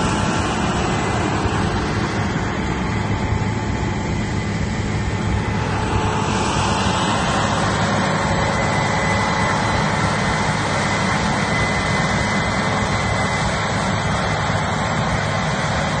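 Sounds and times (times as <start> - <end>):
combine harvester rumbling: 0.0 - 16.0
faint high whines: 0.0 - 16.0.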